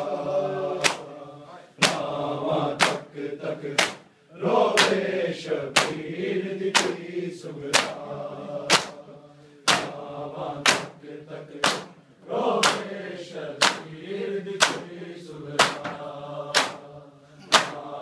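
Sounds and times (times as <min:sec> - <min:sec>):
men chanting in unison: 0:00.0 - 0:18.0
hands slapping bare chests: 0:00.8 - 0:01.1, 0:01.8 - 0:02.1, 0:02.7 - 0:03.1, 0:03.7 - 0:04.1, 0:04.7 - 0:05.1, 0:05.7 - 0:06.0, 0:06.7 - 0:07.0, 0:07.7 - 0:08.0, 0:08.7 - 0:09.0, 0:09.6 - 0:10.0, 0:10.6 - 0:11.0, 0:11.6 - 0:12.0, 0:12.6 - 0:13.0, 0:13.6 - 0:14.0, 0:14.6 - 0:14.9, 0:15.6 - 0:16.9, 0:17.5 - 0:17.9.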